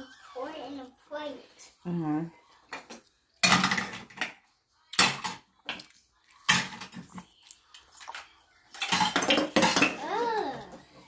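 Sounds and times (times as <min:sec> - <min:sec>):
toy dishes clattering: 0:02.7 - 0:11.0.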